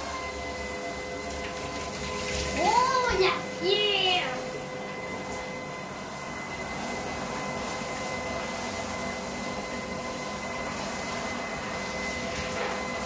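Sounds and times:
shower head spraying water: 0:00.0 - 0:13.0.

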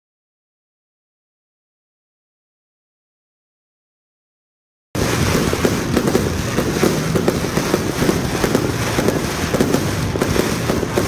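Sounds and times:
fireworks popping and crackling: 0:05.0 - 0:11.0.

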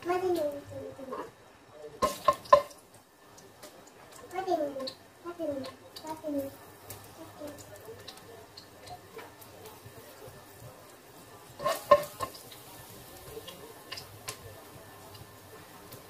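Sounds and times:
garlic sizzling in oil: 0:00.0 - 0:16.0
spatula scraping a wok: 0:11.4 - 0:12.4.

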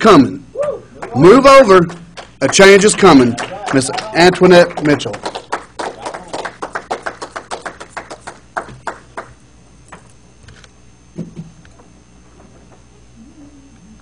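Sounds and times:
audience clapping: 0:00.6 - 0:09.4.

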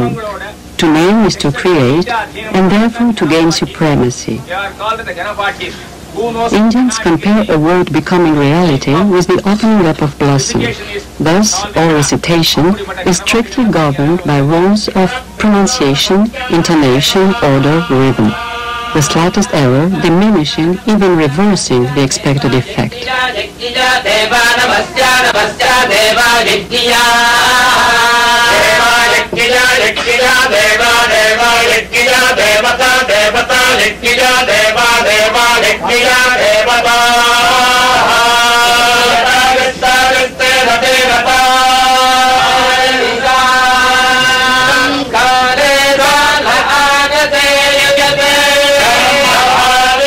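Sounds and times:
men chanting: 0:00.0 - 0:00.2, 0:06.2 - 0:50.0.

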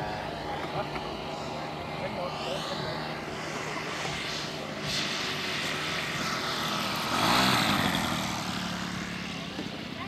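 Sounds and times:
model plane engine droning: 0:00.0 - 0:10.0.

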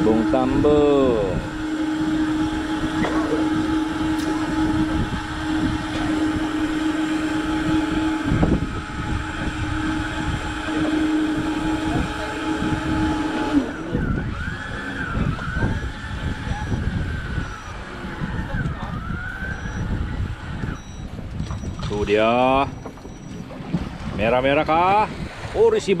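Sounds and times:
boat motor humming: 0:00.0 - 0:26.0
noisy water wash: 0:00.0 - 0:26.0
rising and falling whistling tones: 0:13.7 - 0:19.9.

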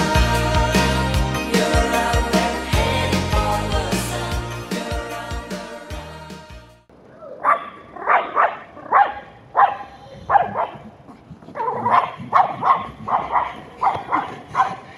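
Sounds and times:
dog barking in short yaps: 0:07.4 - 0:10.8.

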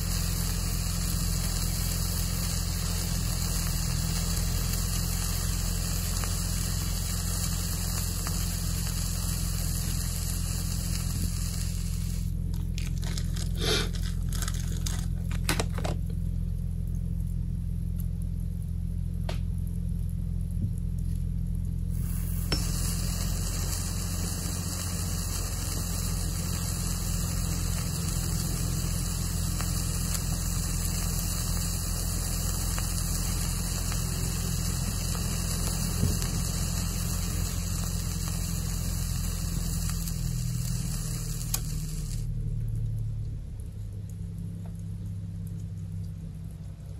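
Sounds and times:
firework pellets hissing: 0:00.0 - 0:15.8, 0:21.9 - 0:42.4
low hum: 0:00.0 - 0:46.9.

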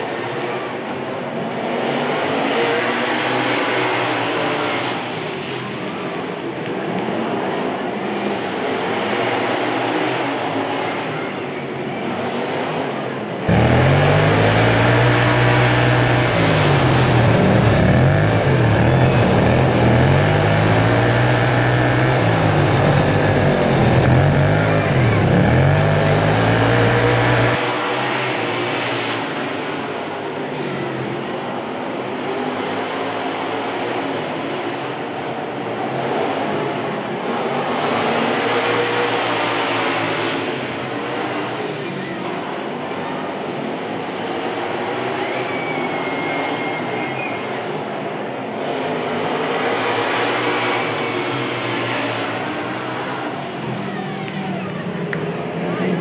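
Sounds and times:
racing lawnmower engines: 0:00.0 - 0:56.0
mower engine revving up and down: 0:13.4 - 0:29.4, 0:48.8 - 0:53.9.

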